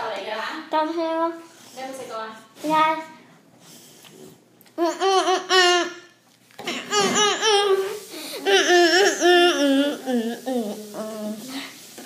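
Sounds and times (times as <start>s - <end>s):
child laughing and squealing: 6.7s - 11.3s.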